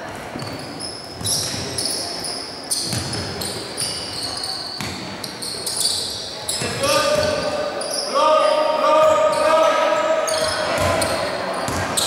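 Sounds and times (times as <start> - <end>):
basketball bouncing: 2.8 - 3.5, 4.8 - 5.1, 6.6 - 7.5, 10.4 - 12.0.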